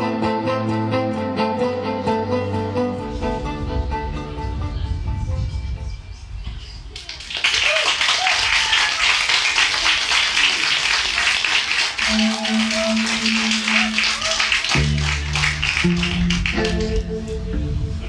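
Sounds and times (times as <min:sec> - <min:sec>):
audience clapping and cheering: 0:06.9 - 0:17.1
low electric cello notes: 0:12.1 - 0:18.0.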